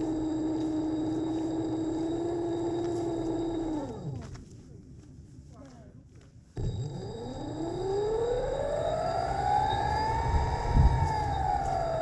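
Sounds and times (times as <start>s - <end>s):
camera rig motor whine: 0.0s - 4.5s, 6.6s - 12.0s.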